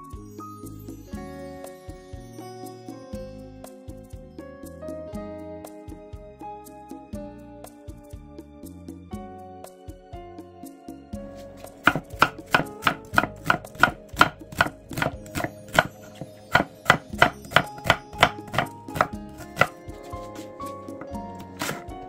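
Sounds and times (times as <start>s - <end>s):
knife slicing onion on wooden board: 11.3s - 22.0s.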